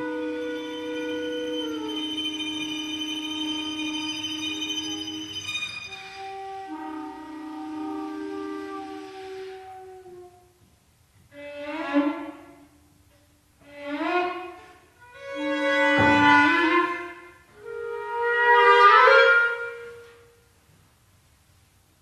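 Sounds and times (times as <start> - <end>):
chamber quintet playing sustained chords: 0.0 - 8.7.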